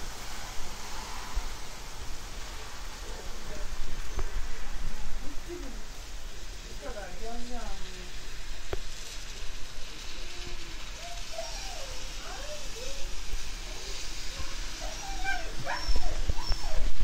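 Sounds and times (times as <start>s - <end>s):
rain hissing: 0.0s - 17.0s
dog whining and whimpering: 10.9s - 17.0s.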